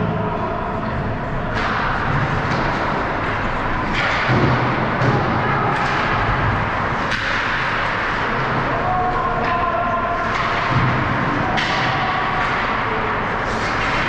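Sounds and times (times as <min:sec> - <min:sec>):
stick and puck knocks: 0:01.5 - 0:08.7, 0:10.2 - 0:14.0.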